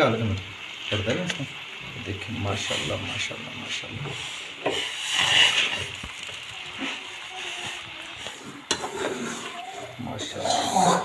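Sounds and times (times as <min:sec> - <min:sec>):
vegetables rustling in a pan: 0:00.0 - 0:11.0
metal spoon scraping a pan: 0:04.0 - 0:09.6.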